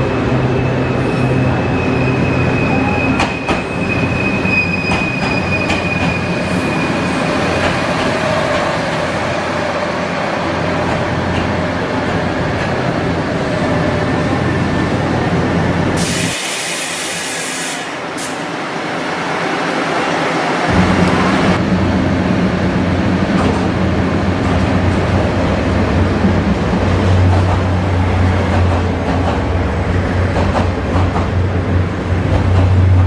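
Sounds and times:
train wheels squealing: 0.4 - 8.5
loud hiss: 16.0 - 18.5.

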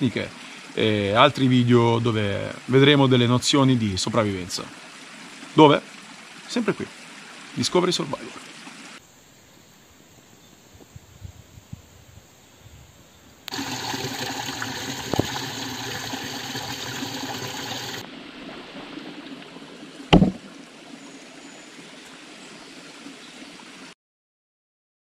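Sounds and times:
heavy thump: 20.1 - 20.5.

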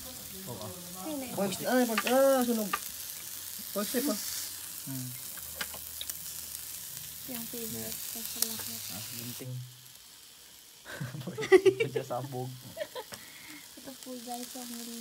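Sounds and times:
meat sizzling on a grill pan: 0.0 - 15.0
chopsticks clicking against a pan: 1.9 - 2.9.

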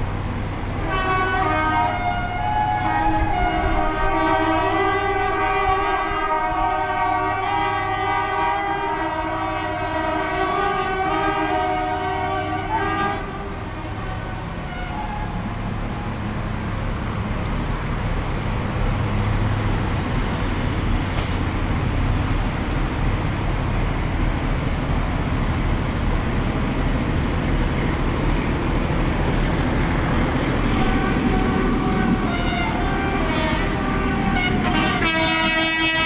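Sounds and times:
diesel engines rumbling: 0.0 - 36.0
locomotive horn blast: 0.0 - 36.0.

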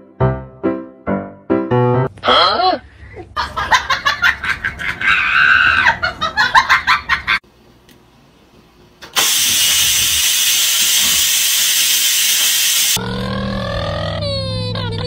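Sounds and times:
person laughing: 2.3 - 7.4
rice cooker steam hissing: 9.1 - 13.0.

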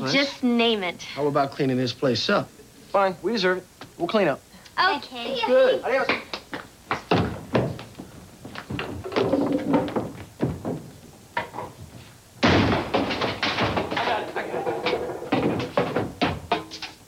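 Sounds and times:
chairs knocking on wooden floor: 6.9 - 17.0.

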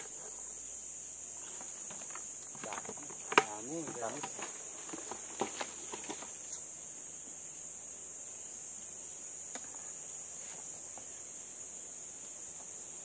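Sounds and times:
insects droning: 0.0 - 13.0
fruit knocking in plastic bucket: 1.9 - 6.3.

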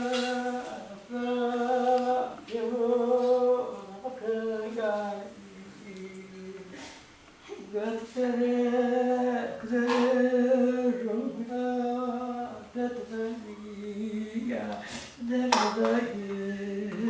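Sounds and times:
woman singing a lament: 0.0 - 17.0
short hiss: 14.8 - 15.2.

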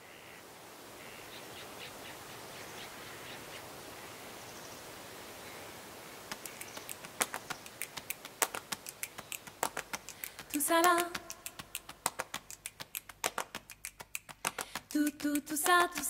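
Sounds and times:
faint birdsong: 0.0 - 10.6
outdoor hiss: 0.0 - 16.0
sharp clicks: 6.3 - 16.0.

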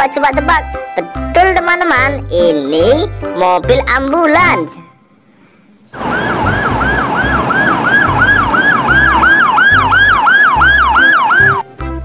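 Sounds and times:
ambulance siren yelping: 6.0 - 11.7.

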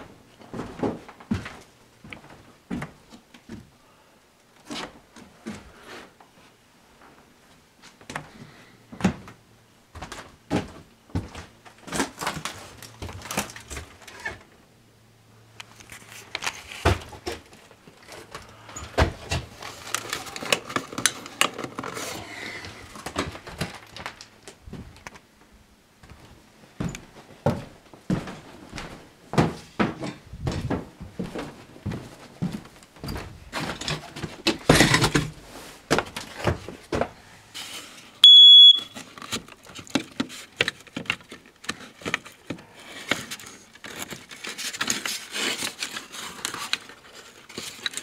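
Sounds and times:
footsteps on wooden floorboards: 0.5 - 3.7, 9.9 - 11.5, 26.0 - 34.9.

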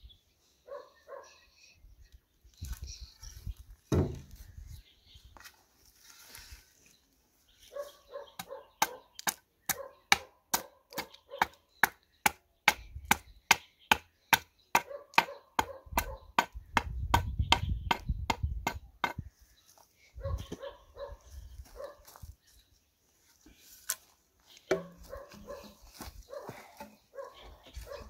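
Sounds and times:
hand axe chopping wood: 24.7 - 25.1.

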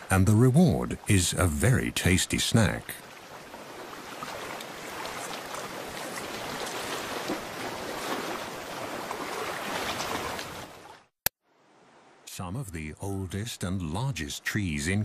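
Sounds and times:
sea water washing over rocks: 2.7 - 10.9.

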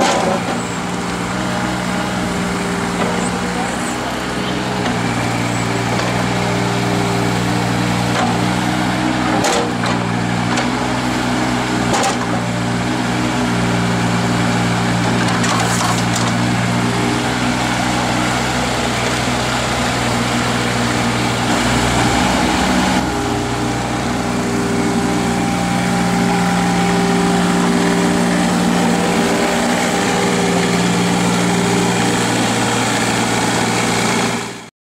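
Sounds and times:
diesel engine running: 0.0 - 34.7.

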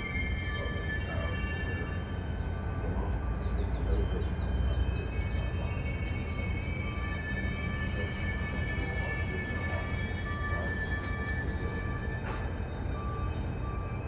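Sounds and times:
constant high whine: 0.0 - 14.0
diesel locomotives idling: 0.0 - 14.0.

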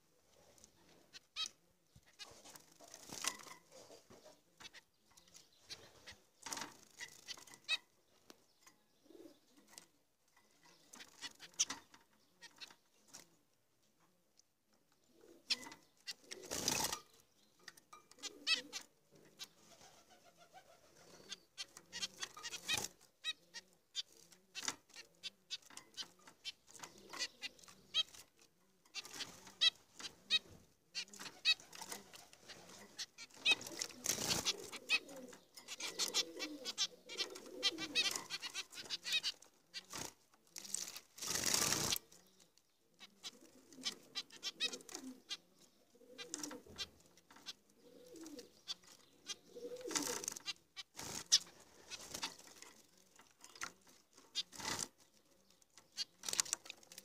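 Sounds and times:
finches chirping: 0.6 - 9.7, 15.1 - 52.6, 53.6 - 57.0
wing fluttering: 15.5 - 17.1, 28.9 - 42.2, 49.7 - 55.0.

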